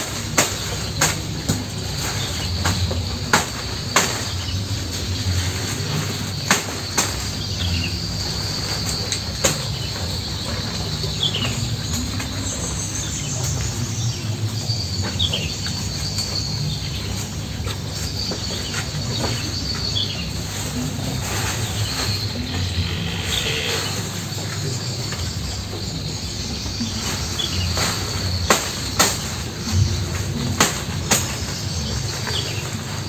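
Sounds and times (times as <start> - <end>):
high-pitched insect buzzing: 22.4 - 24.2.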